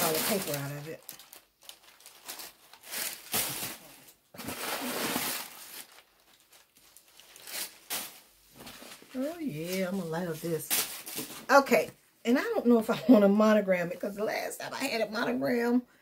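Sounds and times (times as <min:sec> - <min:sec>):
crumpled paper rustling: 0:00.0 - 0:11.6.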